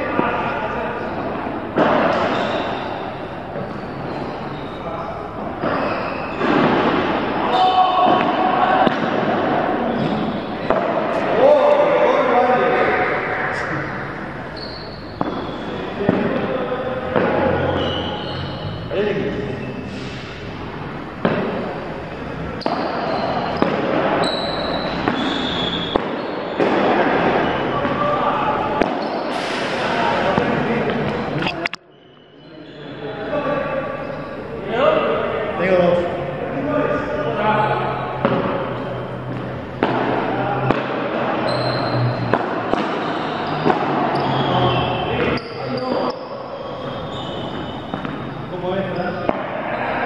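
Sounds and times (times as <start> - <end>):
ball struck by rackets: 8.0 - 11.3, 15.1 - 16.5, 17.1 - 17.7, 21.2 - 28.0, 38.2 - 41.2, 42.3 - 44.2, 47.5 - 48.2.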